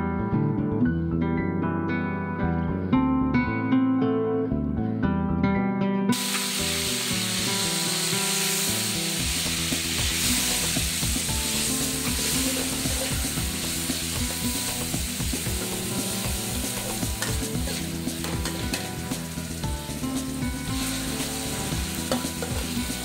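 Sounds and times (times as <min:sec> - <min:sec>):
meat sizzling in hot oil: 0:06.2 - 0:23.0
metal spatula scraping pan: 0:17.2 - 0:19.0.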